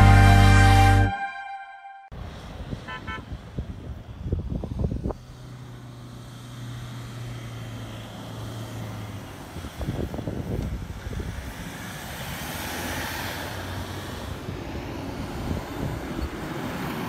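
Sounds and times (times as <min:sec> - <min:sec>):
car engine humming: 0:00.0 - 0:01.2.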